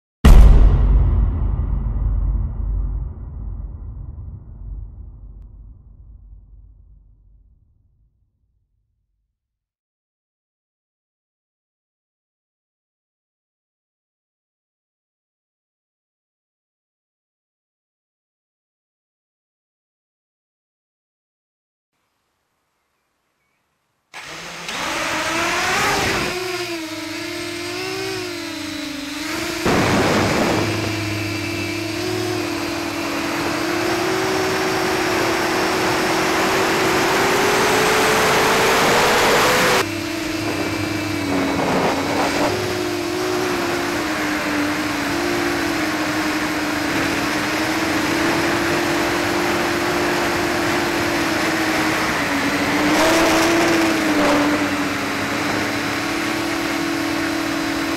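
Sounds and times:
drone motors humming: 24.2s - 57.9s
wind noise on microphone: 29.6s - 32.3s, 39.0s - 43.6s.

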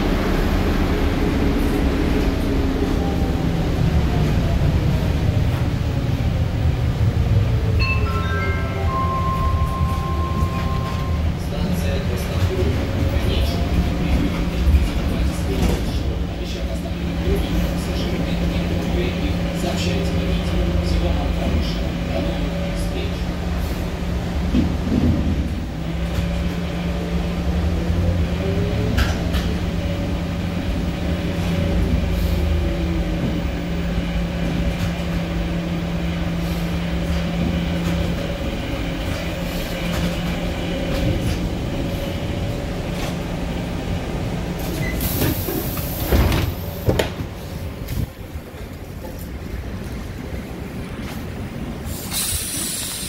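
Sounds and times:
air hiss of doors opening: 44.7s - 47.0s, 51.9s - 53.0s.

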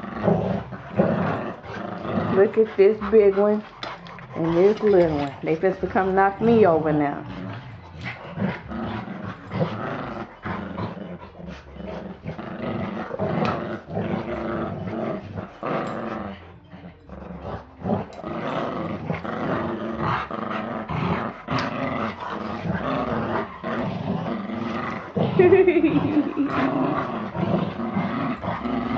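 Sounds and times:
dogs play growling: 0.0s - 28.9s.

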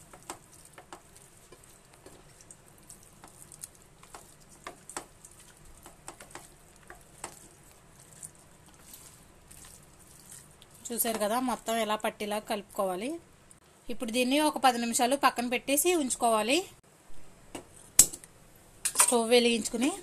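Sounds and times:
hand squishing chicken in marinade: 0.0s - 11.7s.

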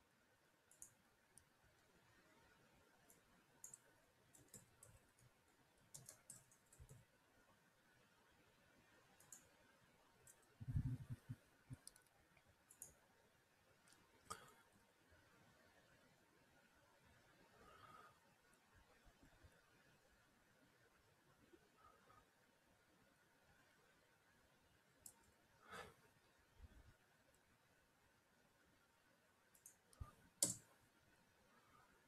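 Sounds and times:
keyboard and mouse clicks: 0.7s - 1.5s, 3.0s - 7.1s, 9.2s - 9.6s, 10.2s - 13.0s, 29.5s - 30.8s.

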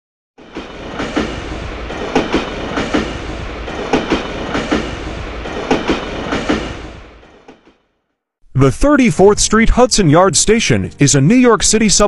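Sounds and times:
train rumble: 0.4s - 7.8s
train wheels clacking: 0.4s - 7.8s.

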